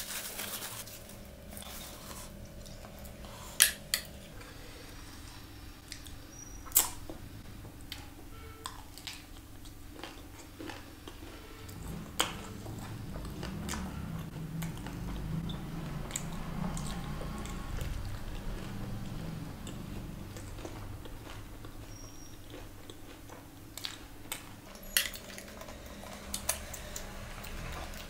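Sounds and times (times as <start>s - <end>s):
chewing and mouth noises: 5.8s - 28.0s.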